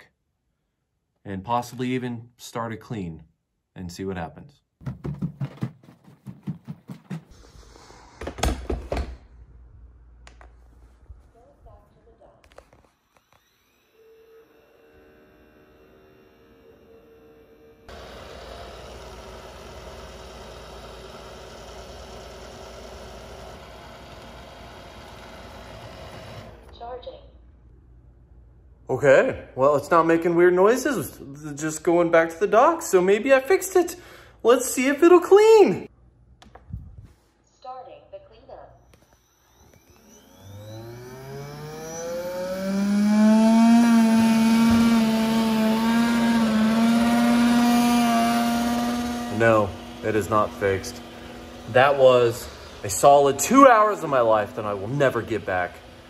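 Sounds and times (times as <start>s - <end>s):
robot vacuum whirring: 17.9s - 26.8s, 38.8s - 56.0s.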